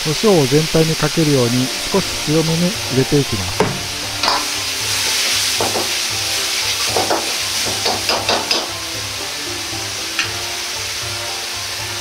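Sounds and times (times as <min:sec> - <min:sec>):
food sizzling in a wok: 0:00.0 - 0:12.0
metal ladle scraping wok: 0:01.3 - 0:05.7.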